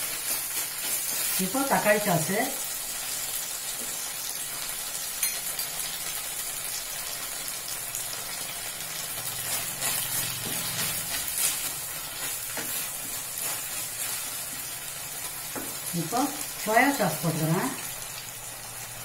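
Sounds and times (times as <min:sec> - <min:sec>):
vegetables sizzling in hot oil: 0:00.0 - 0:19.0
wooden spatula scraping pan: 0:09.5 - 0:14.7.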